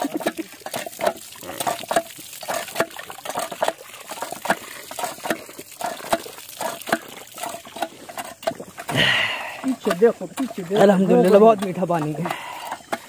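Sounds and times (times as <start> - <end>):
water gushing and splashing: 0.0 - 13.0
metallic pump handle clanks: 9.6 - 13.0.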